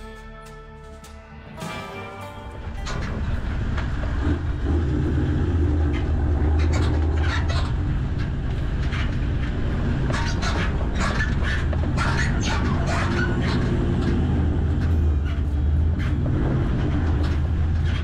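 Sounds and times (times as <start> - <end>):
low engine drone: 0.0 - 18.0.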